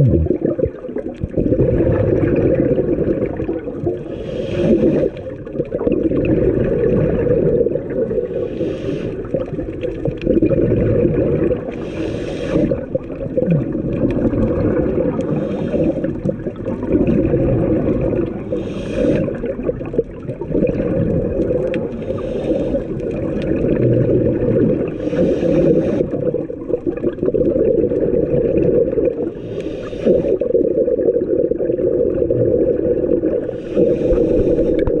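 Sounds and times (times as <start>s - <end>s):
bubbles gurgling underwater: 0.0s - 35.0s
regulator breathing hiss: 4.1s - 5.2s, 8.4s - 9.3s, 11.8s - 12.8s, 15.3s - 16.2s, 18.5s - 19.4s, 22.0s - 23.0s, 25.0s - 26.2s, 29.4s - 30.4s, 33.4s - 35.0s.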